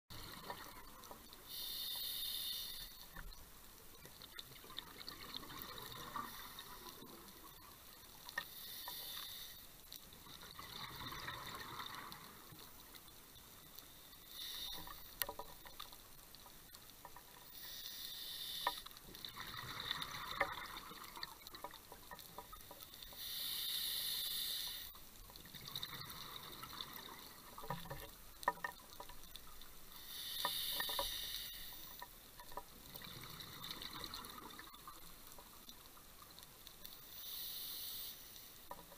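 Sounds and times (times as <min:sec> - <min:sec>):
diver breathing through regulator: 0:01.5 - 0:03.0, 0:08.5 - 0:09.7, 0:14.3 - 0:15.1, 0:23.1 - 0:24.9, 0:30.0 - 0:31.9, 0:37.2 - 0:38.4.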